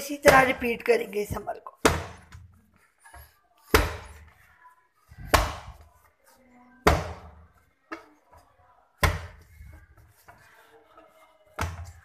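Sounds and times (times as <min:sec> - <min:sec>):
dough slapping into metal basin: 0:01.7 - 0:04.4, 0:05.1 - 0:06.1, 0:06.8 - 0:12.0.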